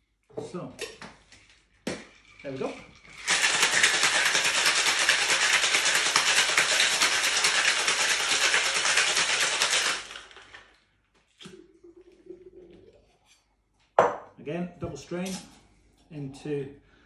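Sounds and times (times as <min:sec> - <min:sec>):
ice rattling in cocktail shaker: 0:01.7 - 0:10.7.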